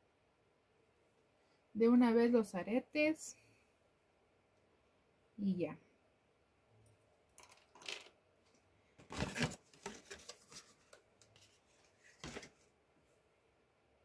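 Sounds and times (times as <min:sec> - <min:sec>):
packaging rustling: 0:09.0 - 0:12.7.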